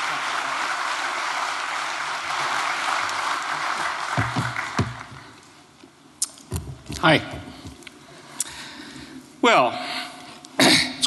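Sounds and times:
audience applause: 0.0s - 5.4s.

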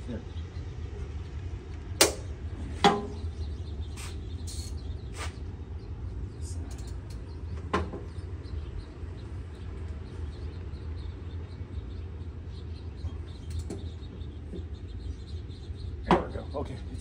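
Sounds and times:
low outdoor rumble: 0.0s - 17.0s
metal knocks on bolts: 2.0s - 3.2s.

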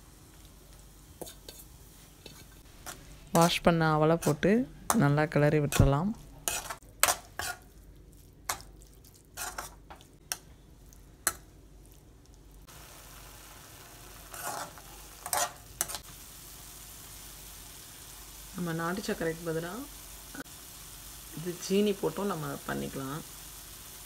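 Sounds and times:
steady sizzle: 0.0s - 24.0s
metal spoon scraping a metal pan: 1.2s - 3.5s, 5.7s - 7.7s, 9.4s - 9.8s, 14.3s - 16.0s.

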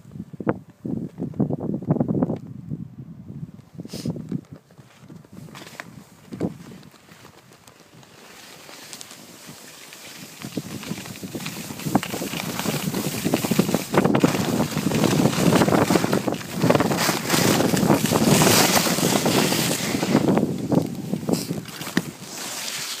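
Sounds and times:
wind buffeting microphone: 0.0s - 8.0s, 9.4s - 22.9s
skis scraping over snow: 4.8s - 23.0s.

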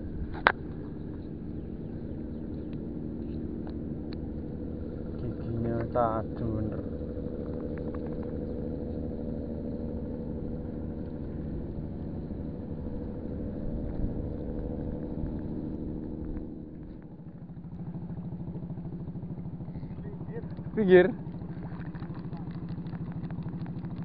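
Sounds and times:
engine running: 0.0s - 24.0s.

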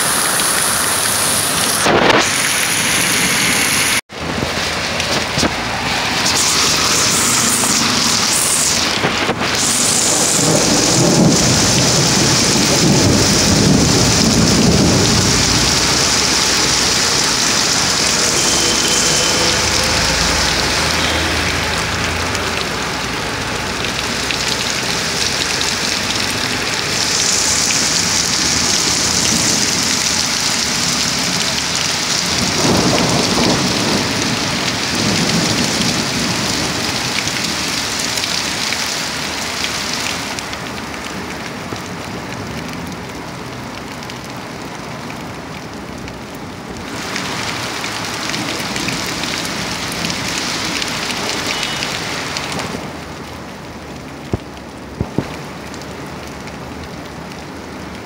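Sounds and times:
heavy rain on pavement: 0.0s - 58.0s
thunder rumbles: 4.2s - 22.6s, 26.1s - 37.6s.

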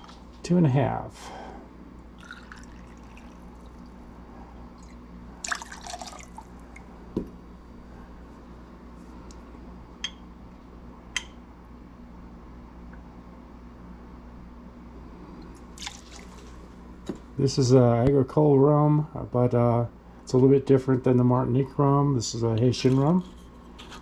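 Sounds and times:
liquid pouring into metal jigger: 2.2s - 4.0s, 4.8s - 6.5s, 15.8s - 16.5s
liquid splash in glass: 15.8s - 16.6s.

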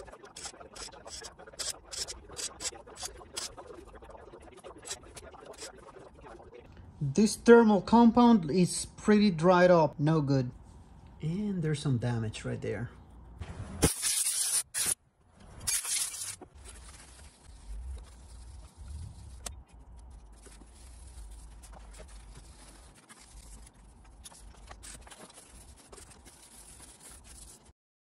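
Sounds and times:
handling and rubbing of metal parts: 0.0s - 6.7s, 13.8s - 27.7s.

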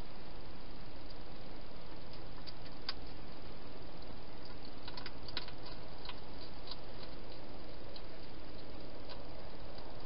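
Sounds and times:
steady hiss: 0.0s - 10.0s
hedgehog crunching food: 1.9s - 10.0s.

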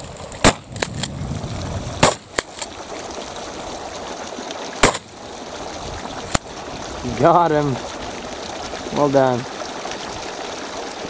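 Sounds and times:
shotgun shots: 0.4s - 1.1s, 2.0s - 2.4s, 4.8s - 5.1s.

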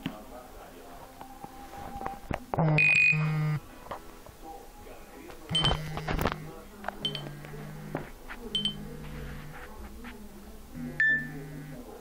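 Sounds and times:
phone alert tones: 2.6s - 3.6s, 5.5s - 6.1s, 8.6s - 8.9s
high beep: 2.8s - 3.3s, 7.0s - 7.2s, 8.6s - 8.8s, 11.0s - 11.4s.

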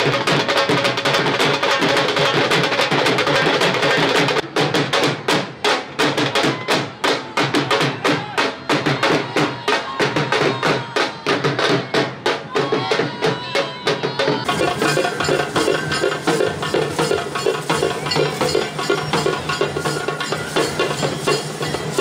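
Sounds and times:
procession drums beating: 0.0s - 22.0s
crowd voices: 5.5s - 22.0s.

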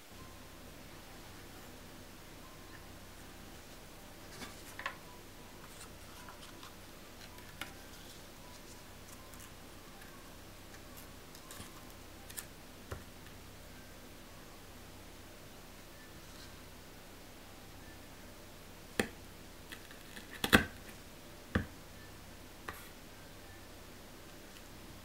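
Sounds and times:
faint steady hiss: 0.0s - 25.0s.

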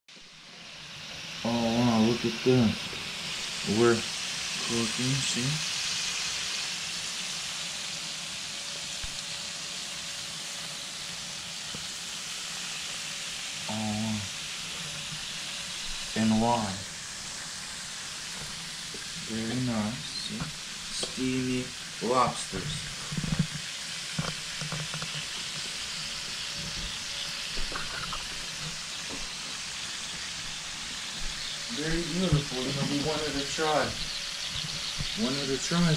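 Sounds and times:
food sizzling on a grill: 0.1s - 35.9s.

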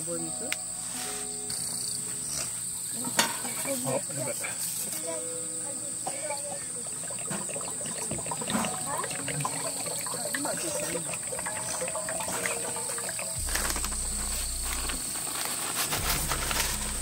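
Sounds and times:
insects trilling: 0.0s - 17.0s
camp cooking clicks and clinks: 6.0s - 17.0s
low steady hum: 6.2s - 17.0s.

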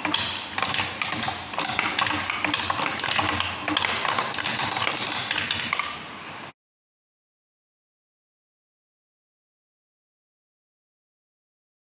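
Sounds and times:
marbles clicking on wood: 0.1s - 5.9s.

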